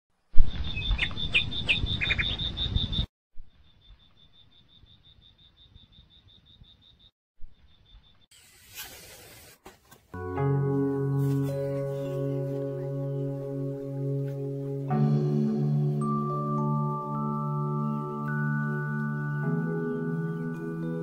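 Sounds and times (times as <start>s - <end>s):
bird chirps: 0.4s - 8.8s
hiss: 8.3s - 9.6s.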